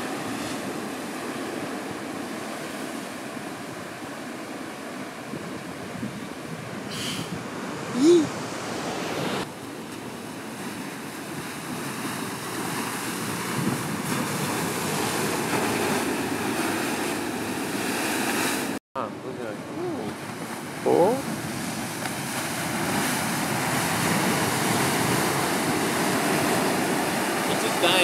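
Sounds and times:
wind buffeting microphone: 0.0 - 18.8, 19.5 - 28.0
ocean surf breaking: 0.0 - 28.0.

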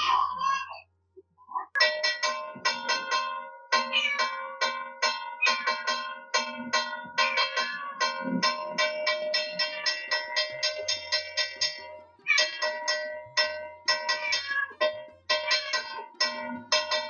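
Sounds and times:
hand bell ringing rapidly: 7.1 - 17.0.

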